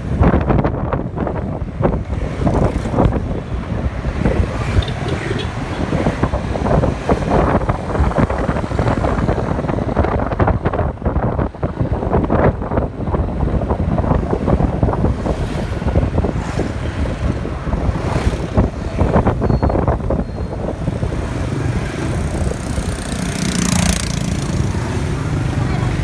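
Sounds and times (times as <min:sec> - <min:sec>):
motorbike and scooter traffic: 0:00.0 - 0:26.0
wind buffeting microphone: 0:00.0 - 0:26.0
loud vehicle passing close: 0:21.3 - 0:26.0.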